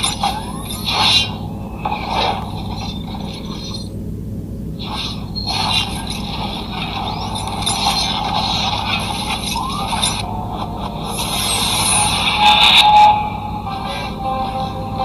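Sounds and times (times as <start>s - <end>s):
steady low hum: 0.0s - 15.0s
whooshing hissing effects: 4.8s - 14.1s.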